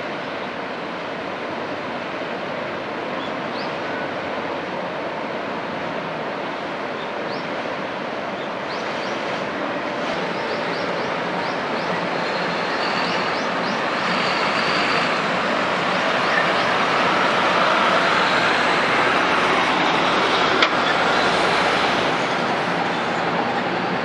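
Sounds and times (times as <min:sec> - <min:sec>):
rushing outdoor background noise: 0:00.0 - 0:24.0.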